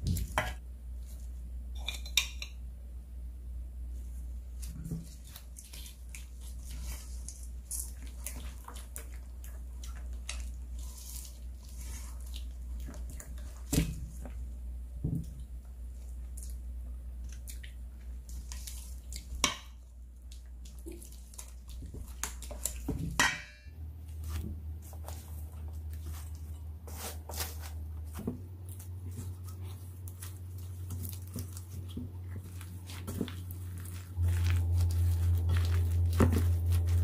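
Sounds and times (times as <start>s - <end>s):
low steady hum: 0.0s - 37.0s
spatula stirring sticky sauce: 4.0s - 14.7s, 15.4s - 23.0s, 24.0s - 37.0s.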